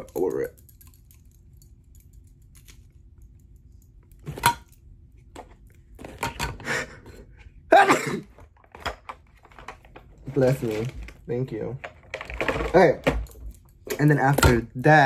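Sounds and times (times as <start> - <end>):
person sneezing: 7.7 - 8.3.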